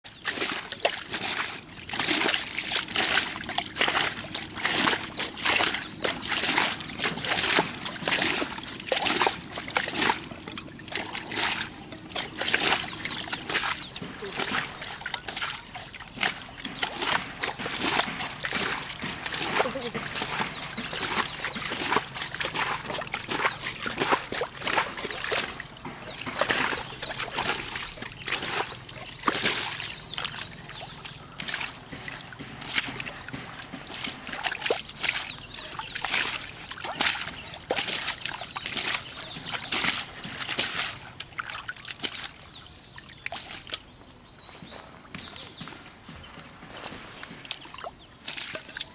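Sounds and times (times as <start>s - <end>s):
fish splashing in shallow water: 0.0s - 45.7s, 46.3s - 48.9s.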